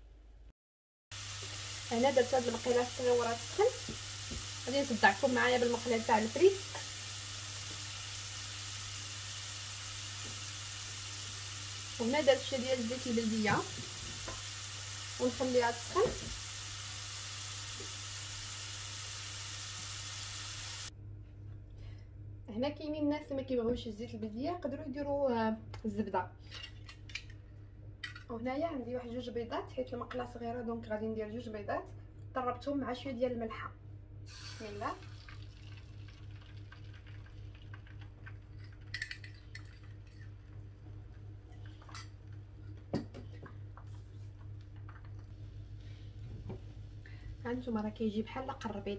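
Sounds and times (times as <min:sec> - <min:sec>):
potato strips sizzling in oil: 0:01.1 - 0:20.9, 0:34.3 - 0:39.2
steady low hum: 0:38.6 - 0:48.9.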